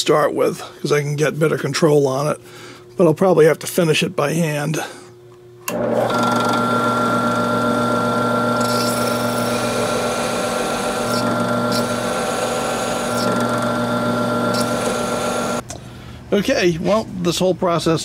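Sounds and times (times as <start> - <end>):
drill press running: 5.6 - 15.6
grinding stone scraping steel: 8.4 - 15.6.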